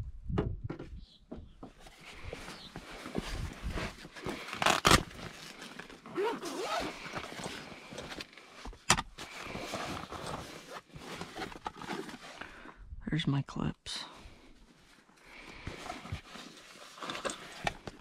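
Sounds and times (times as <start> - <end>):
fabric rustling: 1.8 - 12.4
zipper opening on soft case: 3.6 - 8.3.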